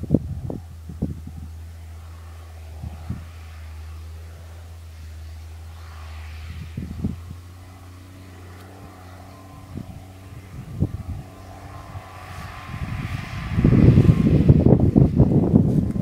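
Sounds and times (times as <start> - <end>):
distant tractor engine: 0.0 - 16.0
wind buffeting microphone: 0.0 - 16.0.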